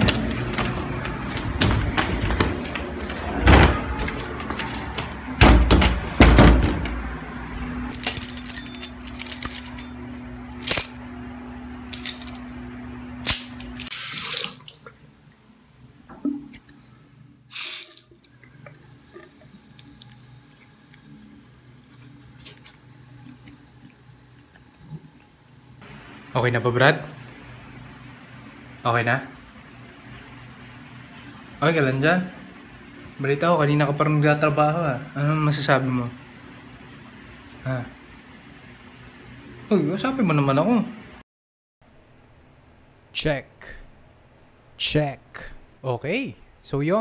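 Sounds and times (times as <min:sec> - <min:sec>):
steady hum: 0:00.0 - 0:41.2
loud knocks and thumps: 0:05.4 - 0:07.0
keys jangling: 0:08.0 - 0:11.0, 0:11.8 - 0:12.6
water running at a sink: 0:13.9 - 0:15.3, 0:17.5 - 0:25.8.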